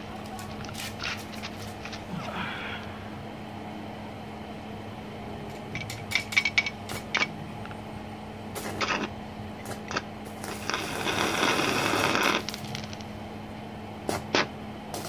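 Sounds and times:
steady low hum: 0:00.0 - 0:15.0
welding arc cracking and crackling: 0:08.6 - 0:13.1.

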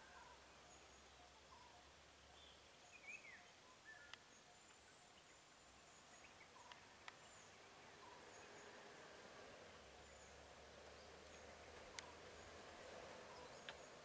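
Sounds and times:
faint bird calls: 0:00.0 - 0:14.0
faint sharp clicks: 0:04.0 - 0:04.3, 0:06.6 - 0:07.2, 0:10.8 - 0:12.3, 0:13.5 - 0:14.0.

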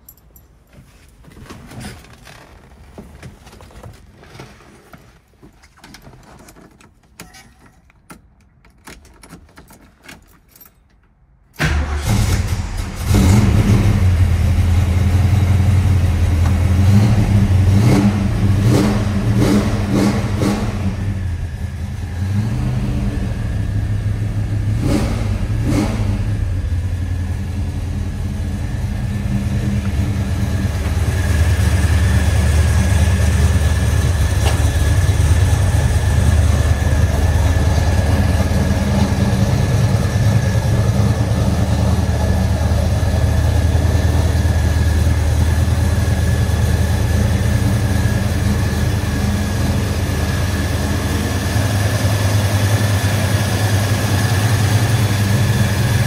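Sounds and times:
car engine cranking and starting: 0:05.7 - 0:56.0
car engine idling: 0:11.6 - 0:56.0.

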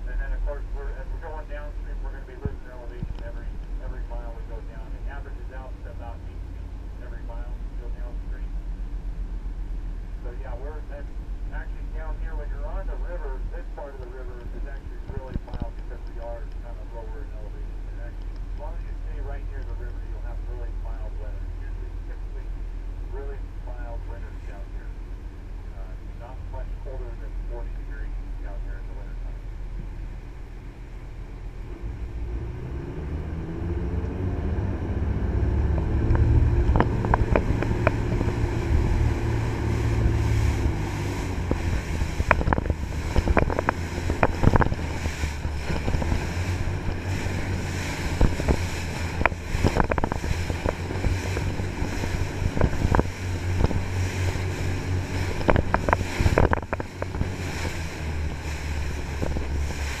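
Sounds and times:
boat engine drone: 0:00.0 - 1:00.0
wind buffeting microphone: 0:32.2 - 1:00.0.

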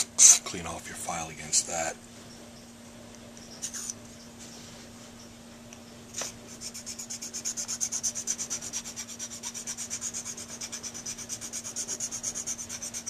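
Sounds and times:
file rasping on metal: 0:06.5 - 0:13.0.

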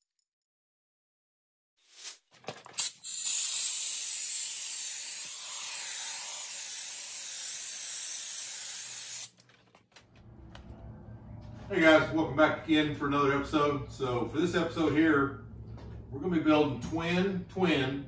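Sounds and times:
compressed air hissing from blow gun: 0:02.8 - 0:09.3.

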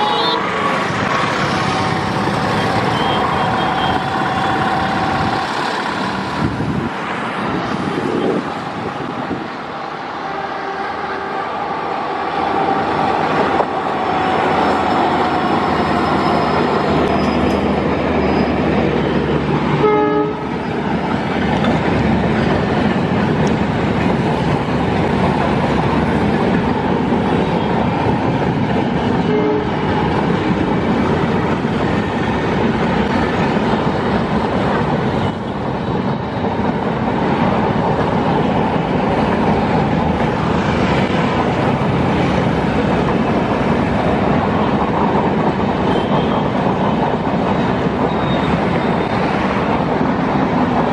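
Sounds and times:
train horn: 0:02.8 - 0:05.3, 0:10.3 - 0:11.7, 0:19.8 - 0:20.6, 0:29.2 - 0:29.9.

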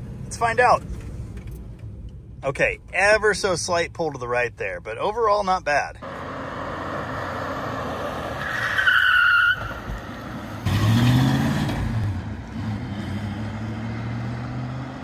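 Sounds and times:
tyre squeal: 0:08.4 - 0:09.9
car engine revving: 0:10.0 - 0:15.0.

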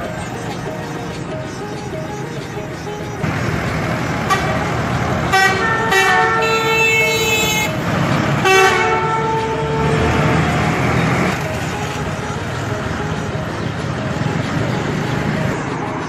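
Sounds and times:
bus driving past: 0:00.0 - 0:16.0
vehicle horn blasts: 0:04.2 - 0:11.4.

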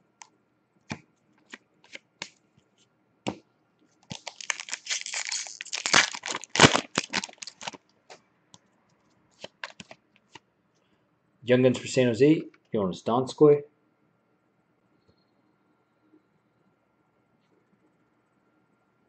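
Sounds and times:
cards clicking: 0:01.4 - 0:02.3, 0:09.4 - 0:10.0
foil wrapper tearing and crinkling: 0:04.1 - 0:07.8, 0:09.4 - 0:10.0.

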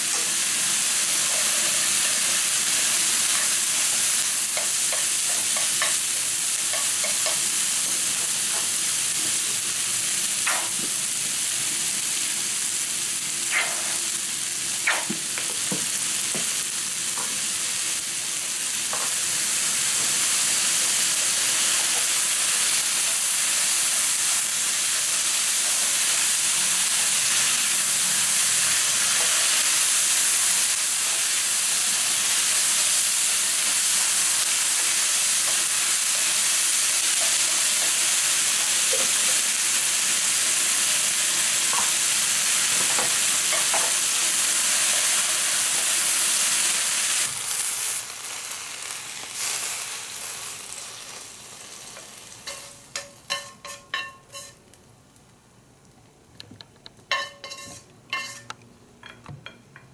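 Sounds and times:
noodles sizzling in a frying pan: 0:00.0 - 0:55.6, 0:57.0 - 0:59.6
chopsticks clinking on pan: 0:52.4 - 0:54.6, 0:57.1 - 0:59.9.

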